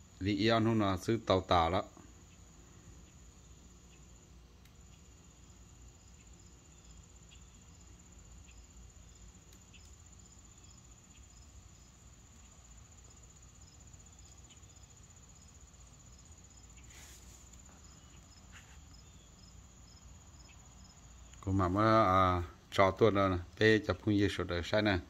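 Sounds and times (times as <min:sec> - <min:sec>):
insects trilling: 0:00.0 - 0:25.0
brief hiss: 0:16.8 - 0:17.7.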